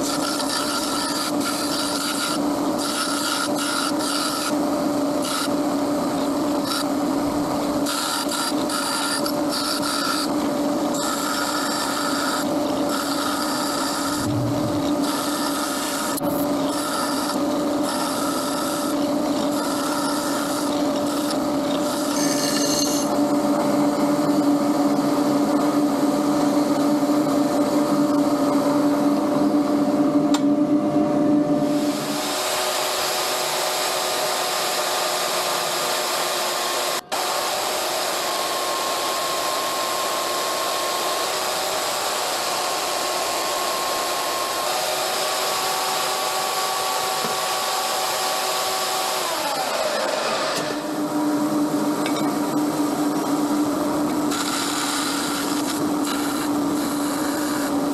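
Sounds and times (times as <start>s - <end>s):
drill press motor running: 0.0s - 29.6s, 31.7s - 57.9s
metal rasping on abrasive belt: 15.0s - 23.2s.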